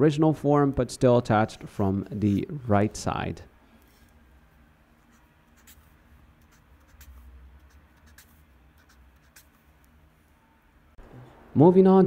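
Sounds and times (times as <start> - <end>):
marker scratching on paper: 5.0 - 9.8.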